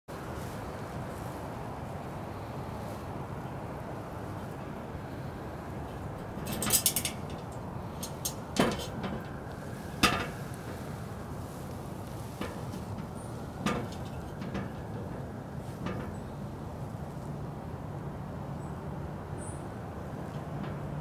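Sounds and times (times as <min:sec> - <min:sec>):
cat claws knocking on metal ladder: 0:06.2 - 0:09.3.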